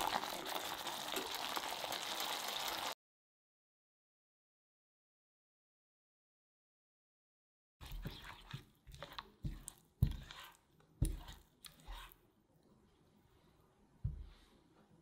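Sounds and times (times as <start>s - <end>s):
spatula stirring and scraping: 7.8s - 12.3s.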